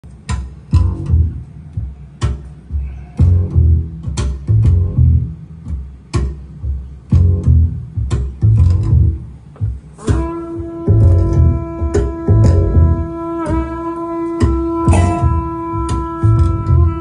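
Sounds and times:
deep bass notes: 0.0s - 17.0s
music over loudspeakers: 0.1s - 17.0s
sharp strike: 14.9s - 15.4s.

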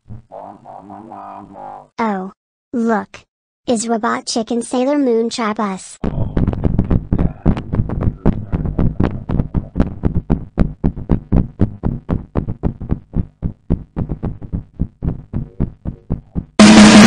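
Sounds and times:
heavy bass: 6.0s - 17.0s
music with fast drum beat: 6.1s - 17.0s.

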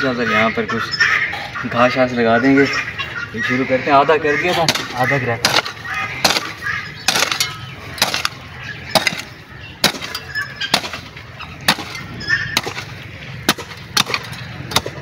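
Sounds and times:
hoe striking hard soil: 4.6s - 11.1s, 13.5s - 15.0s.

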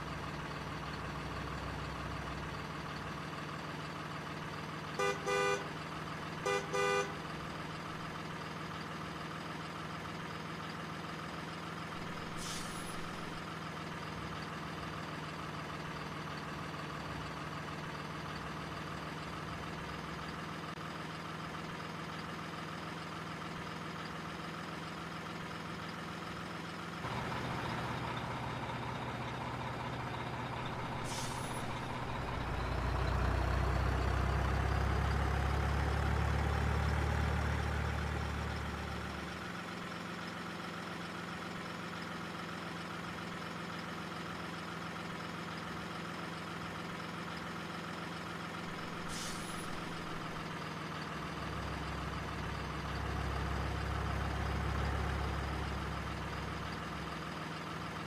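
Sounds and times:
truck engine idling: 0.0s - 58.0s
truck horn blasts: 4.9s - 5.8s, 6.4s - 7.2s
air brake hisses: 12.2s - 13.4s, 30.7s - 32.3s, 48.9s - 50.4s.

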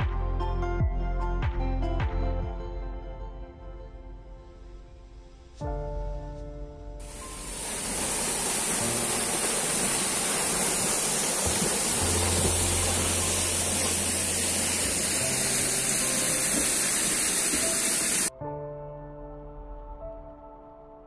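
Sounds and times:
soft background music: 0.0s - 21.0s
waterfall rushing: 7.0s - 18.3s.

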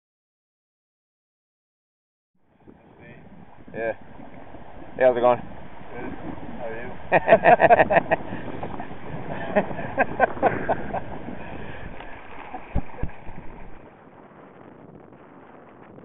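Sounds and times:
water splashing along hull: 2.4s - 16.0s
wind on microphone: 2.4s - 16.0s
man laughing: 7.0s - 11.5s, 12.4s - 13.3s.

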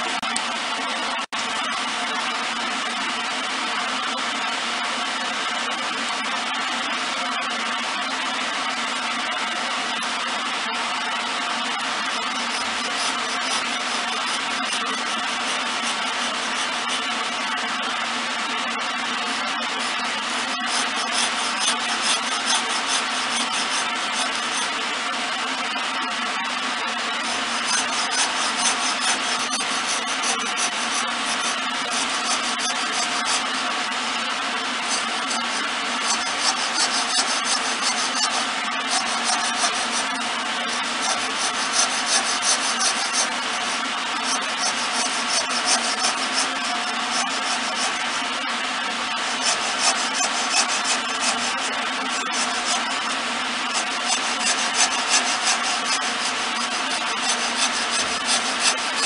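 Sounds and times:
lathe humming: 8.1s - 59.0s
hacksaw rasping on spinning wood: 11.2s - 17.8s, 19.2s - 25.4s, 26.9s - 59.0s.

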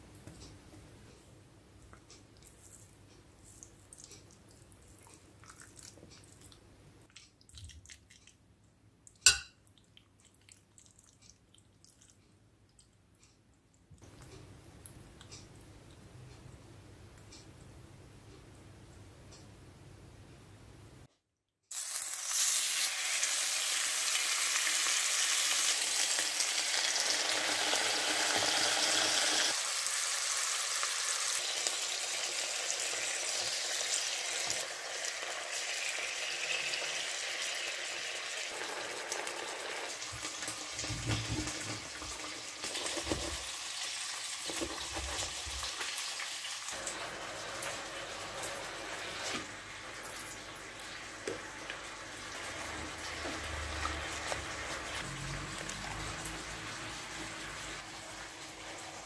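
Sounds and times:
squid sizzling in a pan: 21.7s - 40.5s.

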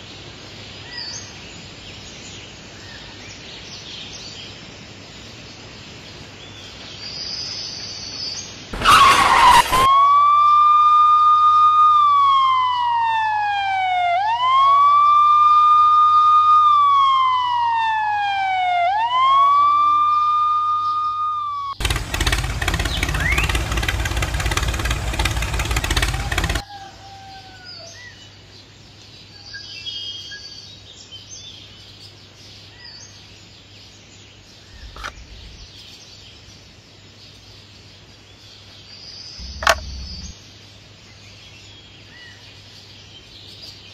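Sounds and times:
loud rough rushing noise: 8.8s - 9.9s, 21.8s - 26.6s
siren wailing: 8.8s - 21.8s, 23.1s - 26.6s, 39.4s - 40.3s
birds chirping: 13.7s - 26.6s, 34.6s - 36.3s, 38.8s - 40.6s.

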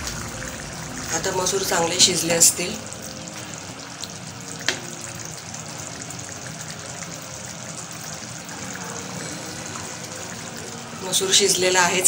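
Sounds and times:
curry simmering and sizzling: 0.0s - 12.0s.

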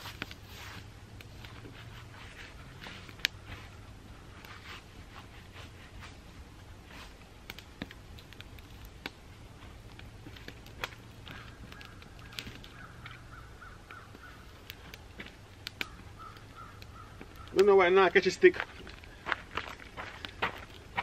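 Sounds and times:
campfire crackling and popping: 0.0s - 21.0s
birds calling: 10.6s - 21.0s.

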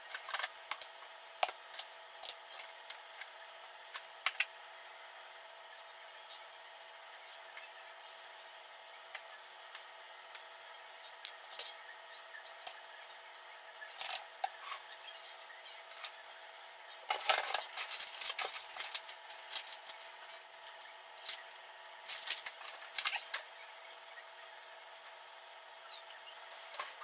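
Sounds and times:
packages rustling: 17.1s - 20.6s, 22.0s - 23.4s.

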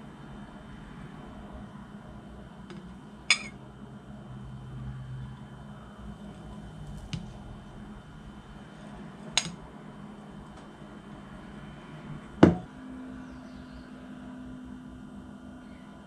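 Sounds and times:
faint steady hum: 0.0s - 16.0s
spoon clinking on plate: 3.3s - 3.6s
loud knock on countertop: 12.4s - 12.7s.

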